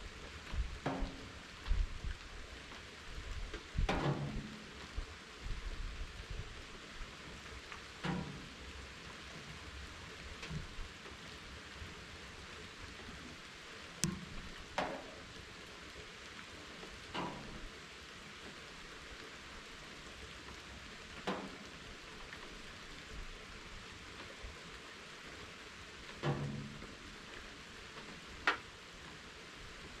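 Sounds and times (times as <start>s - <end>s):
raindrops plinking: 0.0s - 2.5s, 3.4s - 5.0s, 13.1s - 20.1s, 23.6s - 29.3s
steady rain falling: 0.0s - 30.0s.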